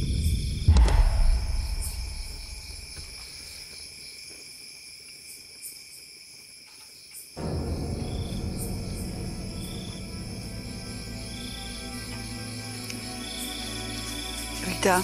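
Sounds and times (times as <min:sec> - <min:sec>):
sharp hit with low rumble: 0:00.0 - 0:03.2, 0:07.4 - 0:11.1
insects trilling: 0:00.0 - 0:15.0
low sound: 0:00.2 - 0:03.2.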